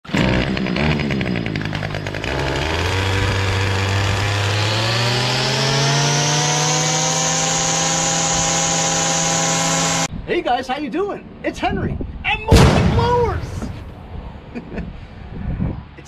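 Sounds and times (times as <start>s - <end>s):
string trimmer engine revving: 0.0s - 10.1s.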